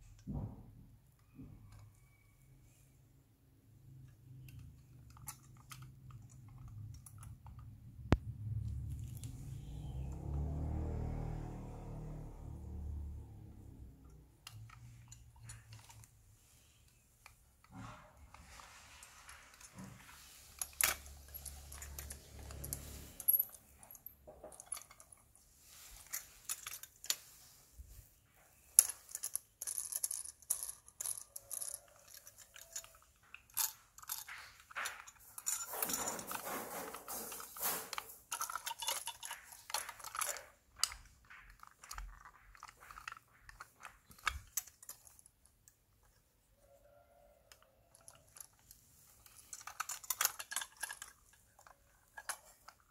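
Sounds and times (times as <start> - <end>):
model truck parts clicking: 3.9 - 10.5, 11.4 - 27.4, 28.7 - 46.3, 47.5 - 52.9
rubbing and rattling: 11.6 - 46.4, 47.5 - 52.9.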